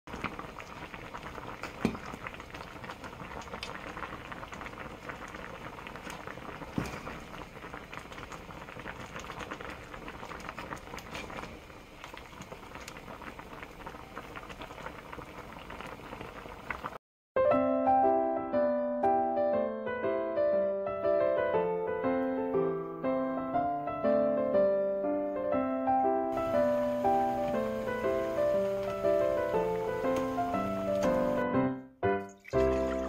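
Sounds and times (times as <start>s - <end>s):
broth bubbling in a pot: 0.1s - 17.0s, 26.3s - 31.4s, 32.4s - 33.0s.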